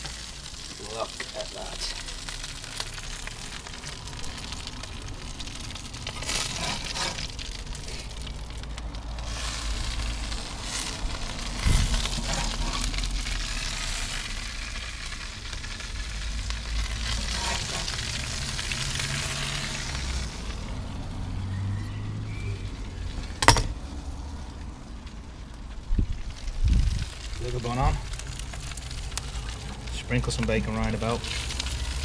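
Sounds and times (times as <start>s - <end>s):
burgers sizzling on grill: 0.0s - 32.0s
metal spatula scraping: 6.1s - 7.4s, 11.6s - 13.0s, 17.0s - 18.1s.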